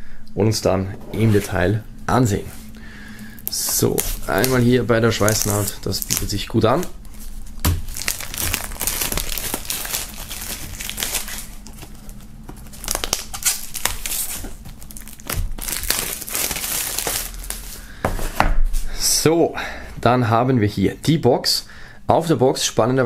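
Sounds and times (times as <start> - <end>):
plastic shrink-wrap crinkling: 3.3 - 17.9.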